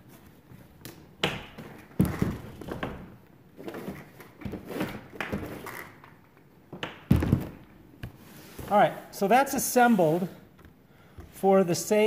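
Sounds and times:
rustling and scraping: 0:07.3 - 0:10.5.

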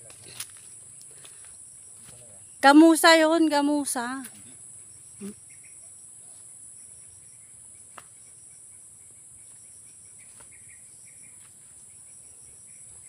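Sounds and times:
insects droning: 0:00.0 - 0:13.0
rapidly pulsing chirp: 0:04.7 - 0:13.0.

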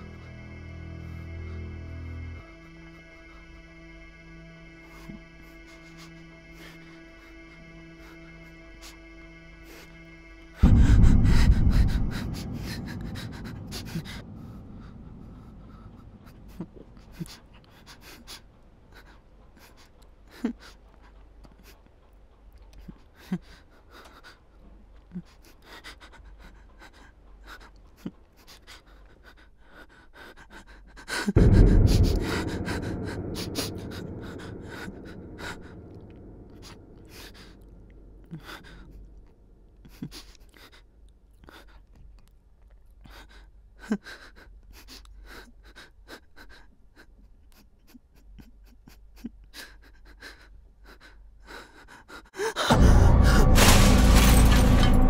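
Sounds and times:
person panting heavily: 0:04.8 - 0:10.0, 0:10.6 - 0:22.0, 0:22.8 - 0:41.9, 0:43.0 - 0:54.6
deep boom: 0:10.6 - 0:15.3, 0:31.4 - 0:36.7.

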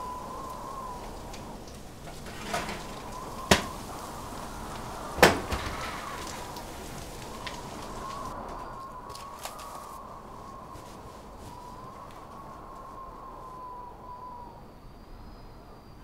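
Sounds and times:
pots and utensils clinking: 0:01.0 - 0:03.8.

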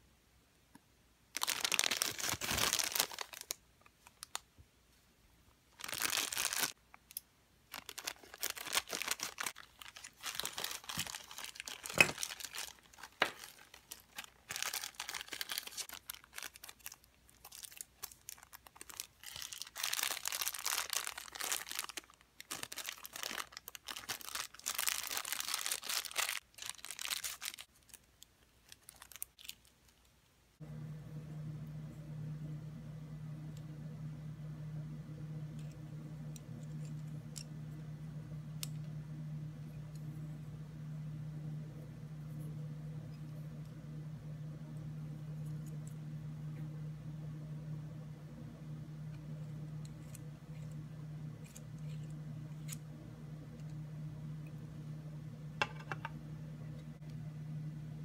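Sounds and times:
plastic bags crinkling: 0:01.3 - 0:04.4, 0:05.8 - 0:06.8, 0:07.7 - 0:30.1.

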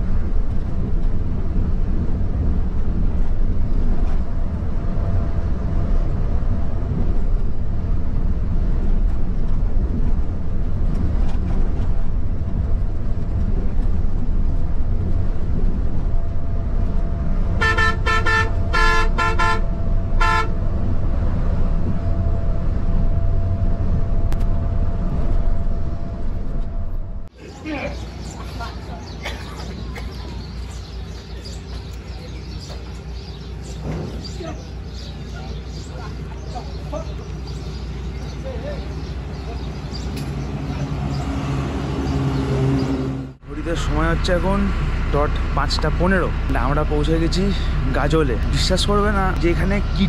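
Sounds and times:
bus engine and road rumble: 0:00.0 - 0:50.0
bus horn short blasts: 0:17.6 - 0:20.6.

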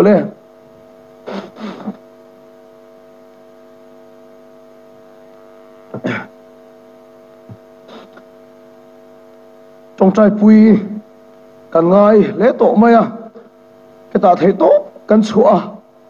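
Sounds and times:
electrical mains hum: 0:00.0 - 0:16.0
short voice sounds: 0:01.3 - 0:02.0.

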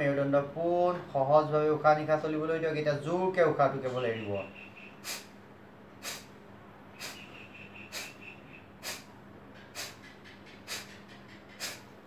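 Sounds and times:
forceful exhalations through nose: 0:05.0 - 0:05.4, 0:06.0 - 0:06.4, 0:07.0 - 0:12.0.

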